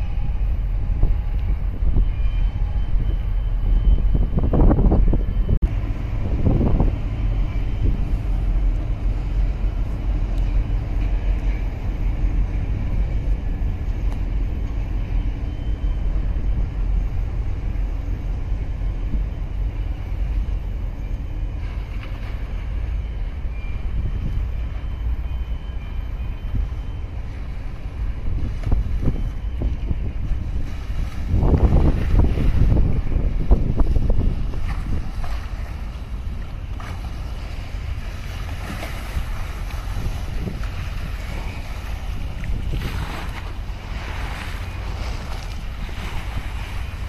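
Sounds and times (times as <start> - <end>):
water washing past boat: 0.0 - 47.0
wind buffeting microphone: 0.0 - 47.0.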